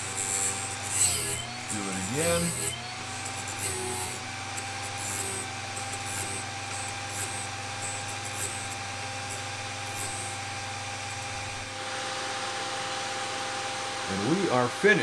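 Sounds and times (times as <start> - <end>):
high grinding hiss: 0.0 - 11.7
sharpener motor hum: 0.0 - 14.4.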